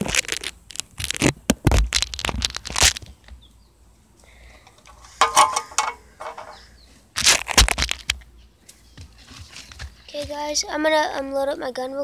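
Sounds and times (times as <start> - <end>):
aluminium cans crinkling and clattering: 4.6 - 6.6.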